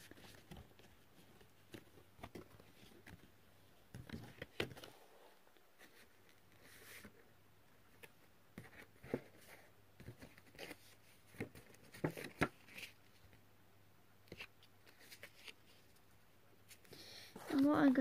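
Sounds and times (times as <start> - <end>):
paper rustling and tapping: 0.0 - 3.3, 8.0 - 12.9.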